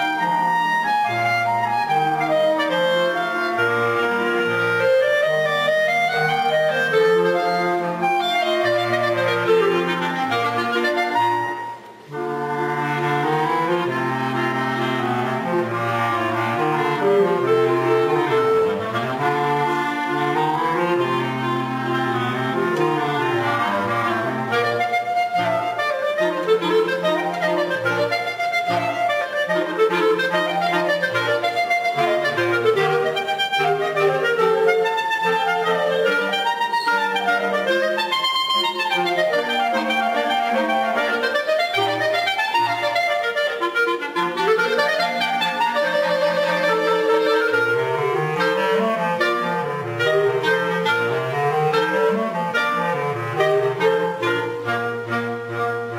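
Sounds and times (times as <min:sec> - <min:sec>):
clarinet ensemble playing: 0:00.0 - 0:55.9.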